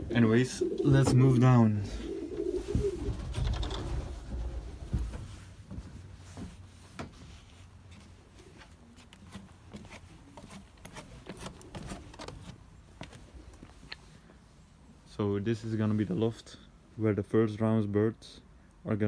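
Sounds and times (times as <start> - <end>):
pigeons cooing: 0.0 - 4.8, 11.3 - 12.5
footsteps on wooden stairs: 2.4 - 14.0.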